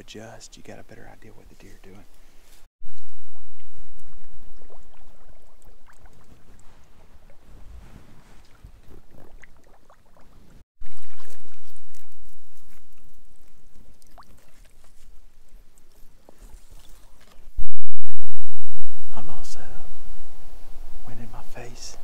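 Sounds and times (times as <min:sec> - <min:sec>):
water sloshing with footsteps: 0:03.6 - 0:17.5.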